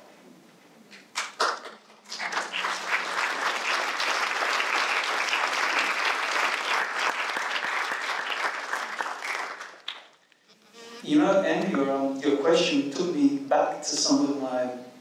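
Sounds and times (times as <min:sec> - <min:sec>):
audience applauding: 0:01.1 - 0:10.2
speaker talking: 0:10.6 - 0:14.8.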